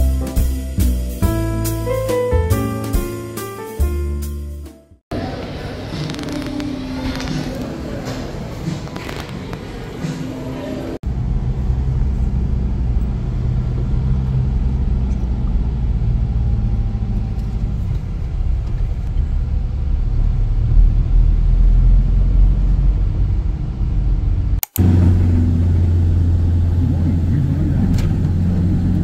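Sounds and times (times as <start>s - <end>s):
road noise: 5.1s - 29.0s
louder low engine hum: 11.0s - 29.0s
vehicle engine rumble: 11.0s - 29.0s.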